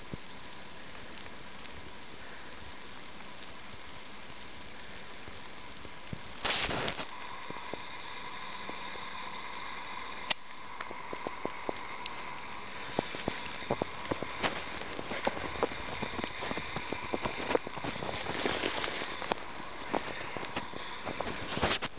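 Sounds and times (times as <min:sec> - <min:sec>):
steady hiss: 0:00.0 - 0:21.9
footsteps crunching in snow: 0:06.4 - 0:07.1, 0:11.3 - 0:21.9
short rush of noise: 0:06.4 - 0:10.3.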